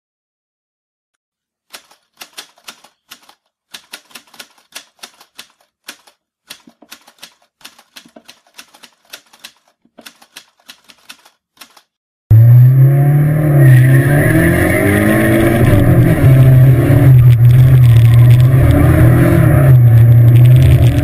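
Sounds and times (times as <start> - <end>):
typewriter key clicks: 1.7 - 11.9.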